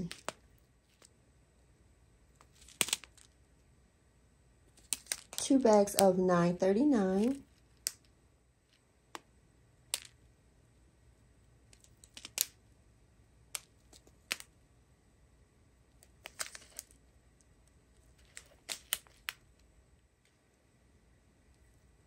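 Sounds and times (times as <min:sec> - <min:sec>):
resin beads shifting: 0:02.3 - 0:03.4, 0:04.7 - 0:06.2, 0:11.7 - 0:12.6, 0:15.9 - 0:17.0, 0:17.9 - 0:20.5.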